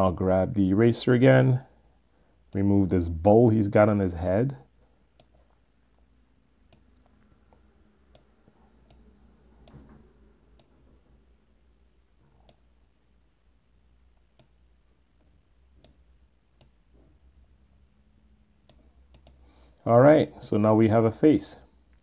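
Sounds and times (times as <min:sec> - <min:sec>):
low steady hum: 0:00.0 - 0:22.0
computer mouse clicks: 0:05.1 - 0:05.6, 0:06.7 - 0:09.9, 0:10.5 - 0:10.8, 0:12.4 - 0:12.7, 0:14.2 - 0:14.6, 0:15.2 - 0:16.0, 0:16.6 - 0:16.8, 0:18.6 - 0:19.4.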